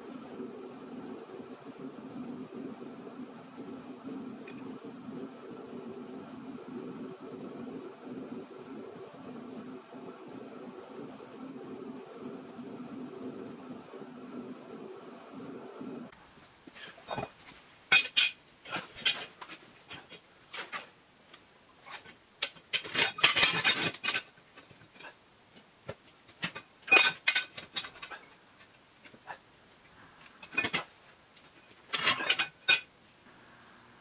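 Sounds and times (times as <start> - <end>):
steel parts clinking and clattering: 16.5 - 20.9, 21.8 - 29.3, 30.2 - 32.9.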